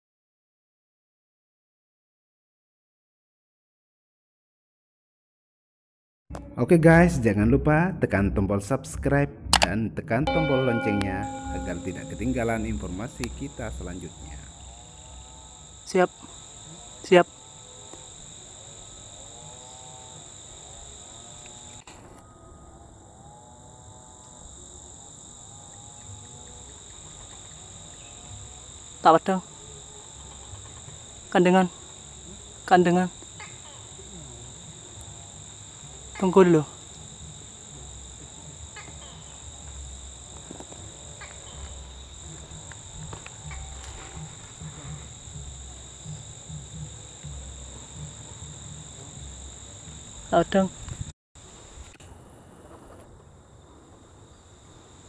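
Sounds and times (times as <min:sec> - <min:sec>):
high insect chorus buzzing: 0:10.3 - 0:55.0
faint ticks: 0:39.6 - 0:45.5.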